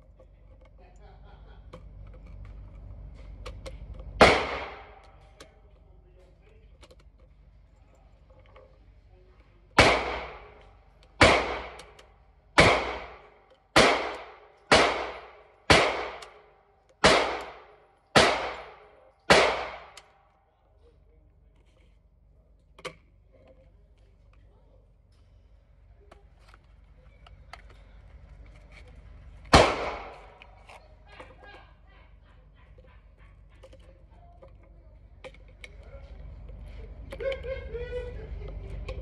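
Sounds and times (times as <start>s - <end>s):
gunshots echoing indoors: 4.2s - 5.4s, 9.8s - 20.2s, 29.5s - 30.6s.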